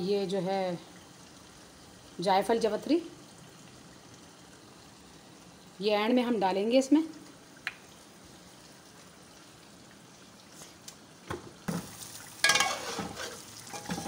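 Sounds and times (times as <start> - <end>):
gravy sizzling: 0.0 - 14.0
spoon scraping a metal pot: 12.5 - 14.0.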